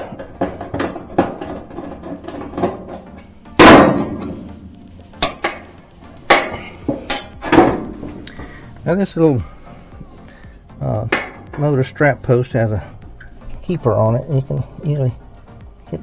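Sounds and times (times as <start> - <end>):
hand tools clanking on sheet metal: 0.0 - 4.5, 5.2 - 8.5, 11.1 - 11.8.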